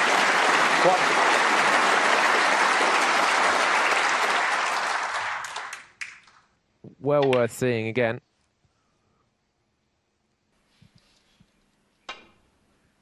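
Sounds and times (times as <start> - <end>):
crowd applauding: 0.0 - 6.5.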